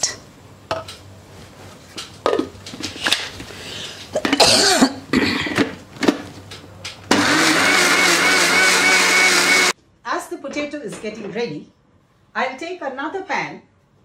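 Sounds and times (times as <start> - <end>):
mixer grinder whining: 7.1 - 9.8.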